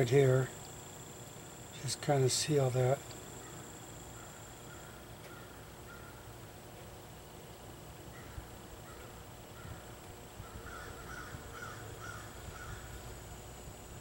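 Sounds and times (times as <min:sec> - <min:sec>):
crow cawing: 0:04.2 - 0:06.3, 0:08.1 - 0:13.0.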